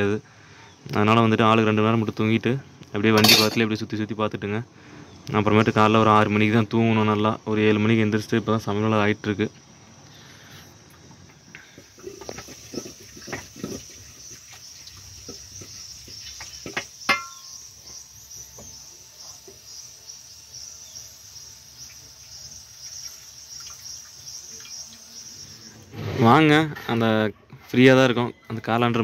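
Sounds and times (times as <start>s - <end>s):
cooking utensils knocking: 3.2s - 3.6s, 16.4s - 17.5s
ladle clinking metal pot: 3.2s - 3.7s, 16.6s - 17.6s
insect chirring: 5.3s - 26.3s.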